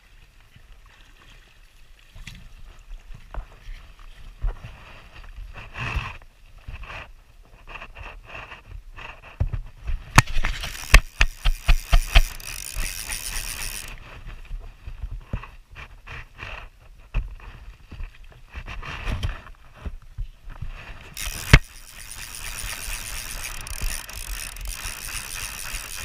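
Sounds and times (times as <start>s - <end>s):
fly reel ratchet clicking: 10.2s - 14.0s, 21.2s - 26.0s.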